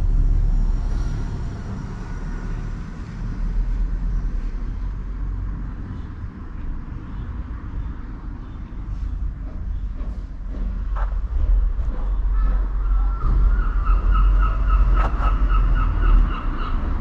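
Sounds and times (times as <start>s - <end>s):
steady low rumble: 8.6s - 17.0s.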